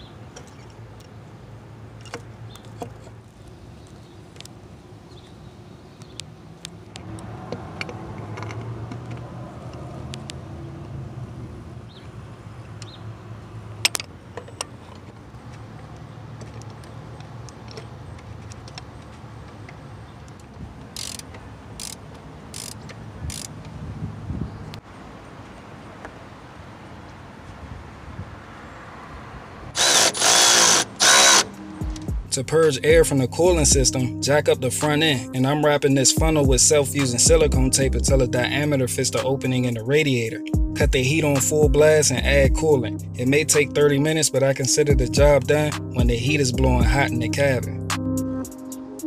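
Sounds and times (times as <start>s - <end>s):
ratchet clicking: 20.3s - 23.7s, 29.8s - 32.1s
tool on metal: 21.0s - 23.5s, 29.8s - 31.6s.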